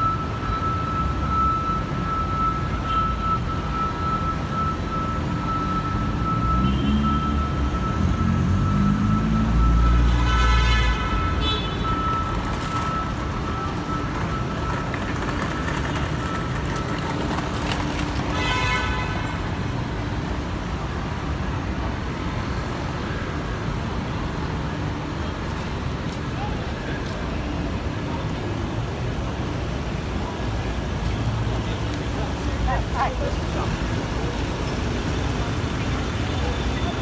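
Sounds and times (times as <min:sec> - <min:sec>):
hum of passing cars: 0:03.4 - 0:10.2
vehicle rumbling close by: 0:05.9 - 0:10.1.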